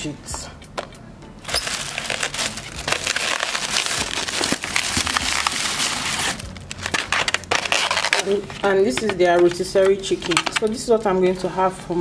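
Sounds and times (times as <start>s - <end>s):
plastic bag rustling and crinkling: 1.4s - 9.1s.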